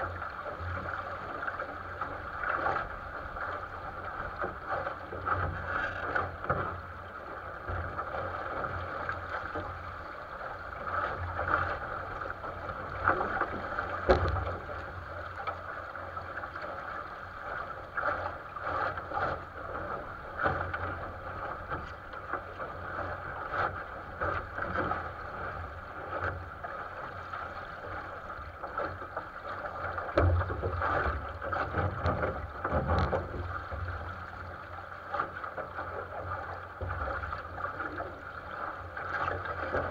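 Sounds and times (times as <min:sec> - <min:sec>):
water rushing along a hull: 0:00.0 - 0:39.9
waves slapping the bow: 0:00.0 - 0:39.9.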